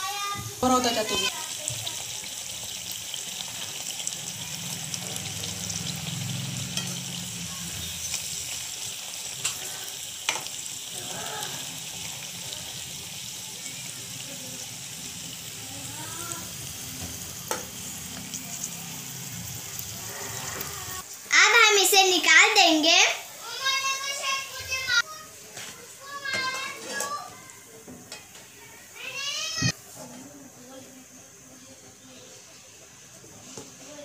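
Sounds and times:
potato slices deep-frying: 0.0s - 34.0s
metal tongs clicking on pan: 9.4s - 9.6s.

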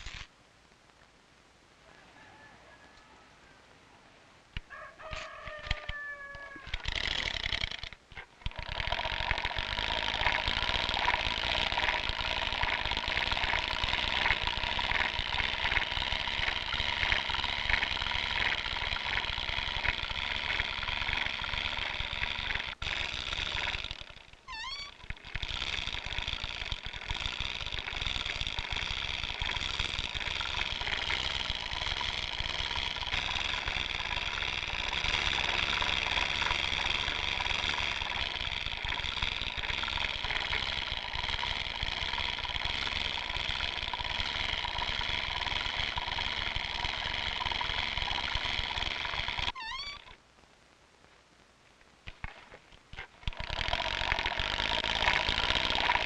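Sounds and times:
wooden rope-twisting device squealing: 0.0s - 0.3s, 4.7s - 50.2s, 53.0s - 56.0s.

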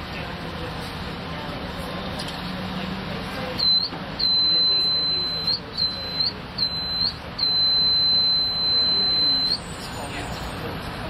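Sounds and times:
high-pitched buzzer beeping: 3.6s - 9.7s.

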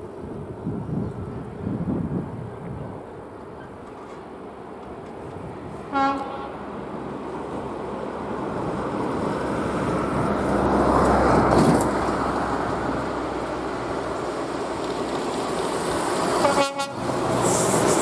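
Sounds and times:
train rumble: 0.0s - 18.0s
train horn toot: 5.9s - 6.6s, 16.4s - 17.0s.

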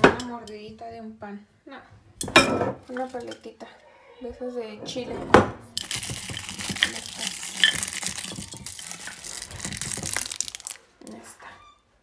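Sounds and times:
candy clicking against glass: 5.8s - 10.9s
candy wrappers crinkling: 5.8s - 11.2s.

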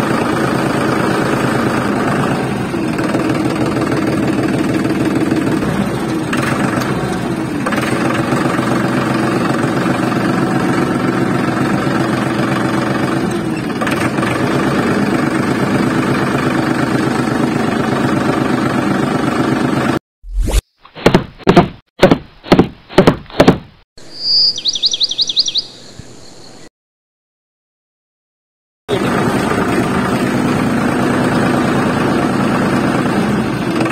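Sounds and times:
tractor engine chugging: 0.0s - 19.9s.

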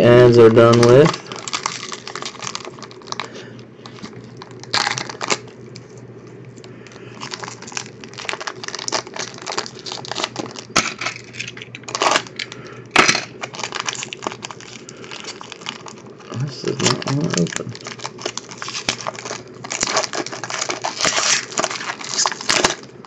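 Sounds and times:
steady low hum: 0.0s - 23.0s
plastic wrapping crinkling and tearing: 0.1s - 23.0s.

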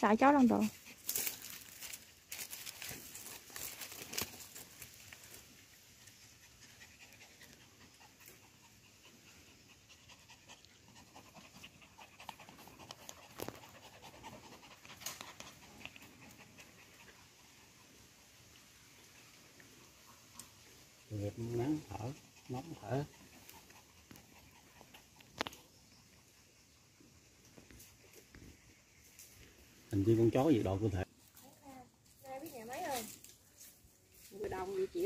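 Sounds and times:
dog panting: 5.3s - 27.3s.

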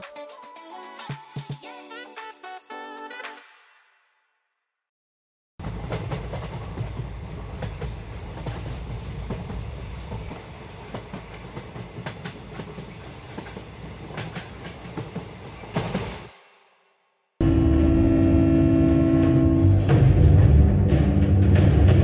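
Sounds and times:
low train rumble: 5.6s - 16.3s, 17.4s - 22.0s
train wheels clattering over rail joints: 5.7s - 16.3s.

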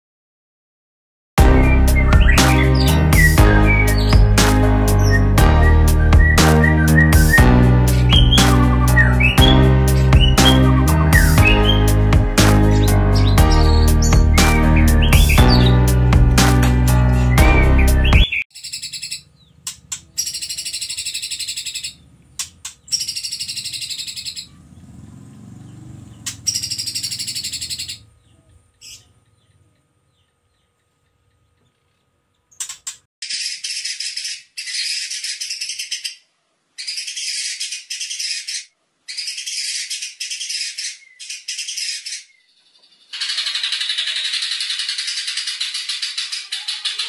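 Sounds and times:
songbird singing rapid high notes: 1.4s - 16.1s, 17.1s - 25.0s, 25.6s - 30.2s.

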